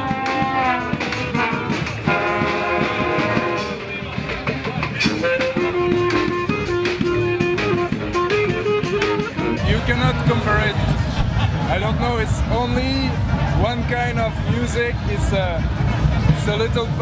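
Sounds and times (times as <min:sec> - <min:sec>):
brass band playing: 0:00.0 - 0:11.9
percussion hits: 0:00.0 - 0:17.0.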